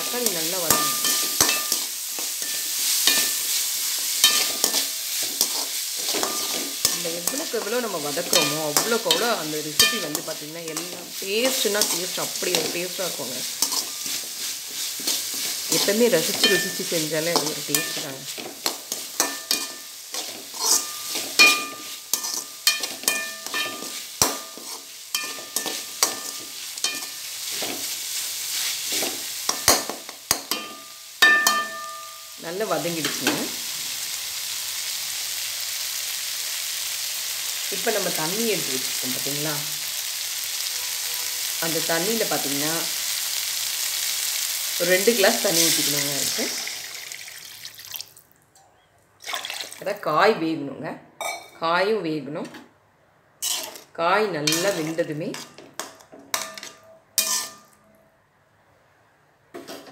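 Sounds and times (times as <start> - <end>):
vegetables sizzling in oil: 0.0 - 48.3, 53.4 - 57.7
metal spoon scraping and tapping pan: 0.1 - 12.8, 13.5 - 28.0, 28.9 - 32.3, 53.4 - 57.8, 59.5 - 59.9.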